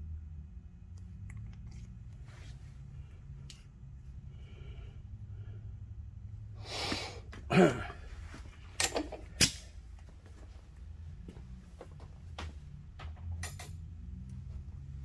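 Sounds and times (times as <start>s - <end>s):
low shop hum: 0.0s - 15.0s.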